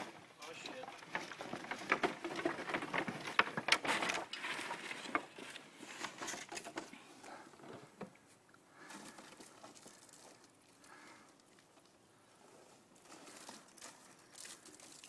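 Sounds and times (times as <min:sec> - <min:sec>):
footsteps on lumber pile: 0:00.0 - 0:06.9.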